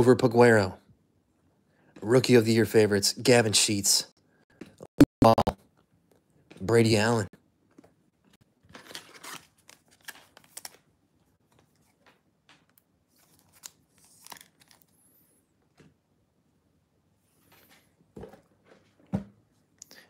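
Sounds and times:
trading cards rustling and clicking: 8.7s - 10.8s, 11.5s - 14.9s.

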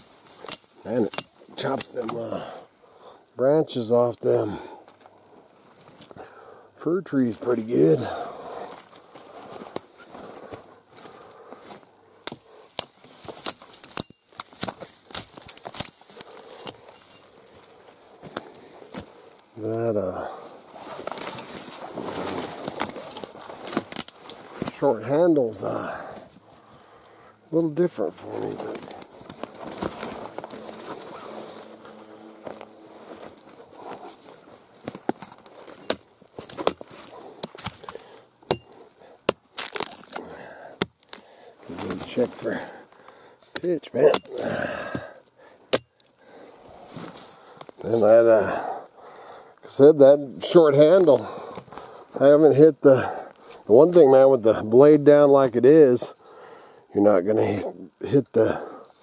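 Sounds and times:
branches snapping: 8.7s - 19.6s, 20.8s - 24.9s, 27.6s - 46.2s, 46.9s - 47.9s
hatchet chopping branches: 12.2s - 17.0s, 34.8s - 41.2s, 43.5s - 46.1s
hatchet chopping wood: 35.9s - 39.4s, 43.5s - 45.0s, 45.7s - 45.9s.

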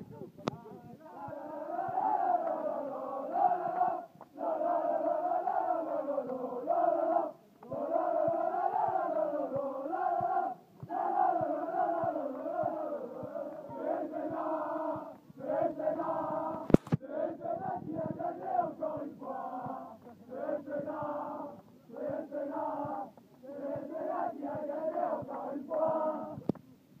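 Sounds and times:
men chanting in unison: 0.9s - 26.4s.

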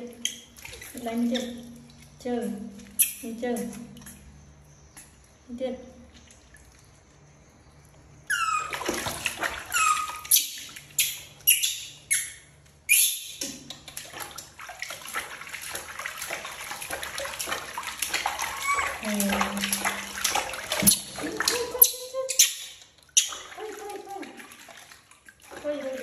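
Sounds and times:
water splashing in a plastic tub: 0.0s - 26.0s
baby monkey squealing: 8.3s - 8.9s, 9.6s - 13.4s, 18.4s - 19.0s.

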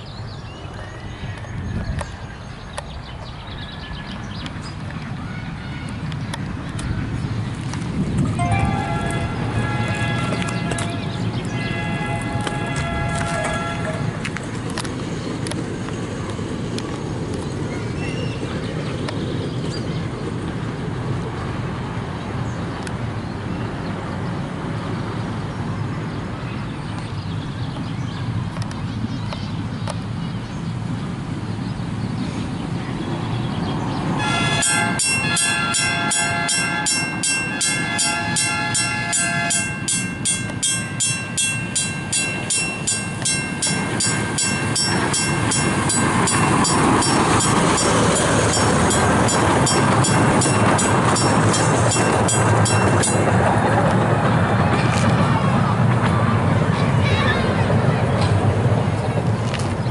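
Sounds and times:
crossing bell clanging: 8.3s - 14.2s, 34.2s - 54.2s.

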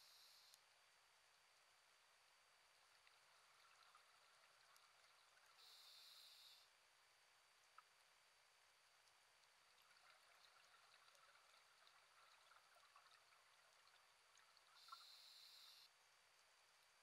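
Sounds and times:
soft underwater clicks: 2.9s - 5.7s, 7.6s - 8.0s.

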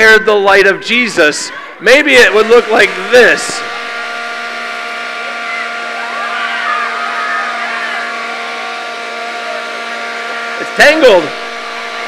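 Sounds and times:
faint children's voices: 0.0s - 2.1s
electric blower humming: 1.1s - 12.0s.

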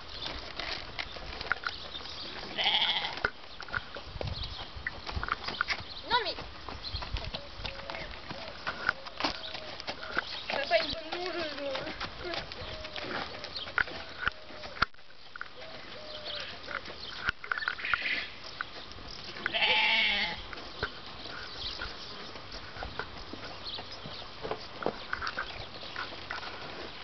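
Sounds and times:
horse hooves on sand and gravel: 0.0s - 27.0s.

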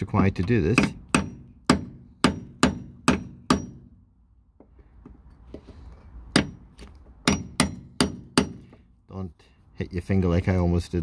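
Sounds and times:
hammer striking steel punch: 0.7s - 4.0s, 6.3s - 6.6s, 7.2s - 8.8s.

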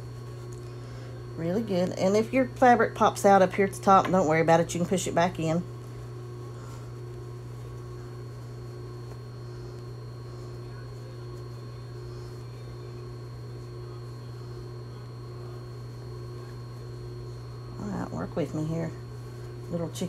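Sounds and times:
low electrical hum: 0.0s - 20.0s
faint high whine: 5.9s - 20.0s.

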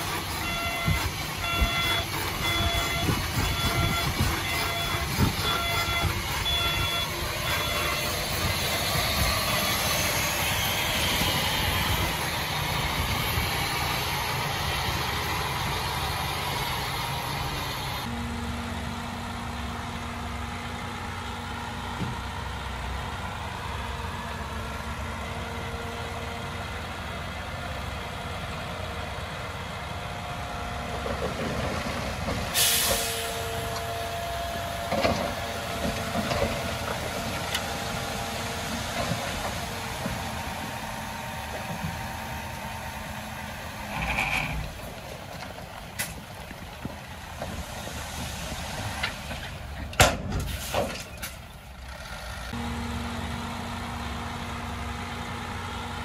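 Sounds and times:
diesel machinery running: 0.0s - 56.0s
burst of hiss: 32.6s - 33.5s.

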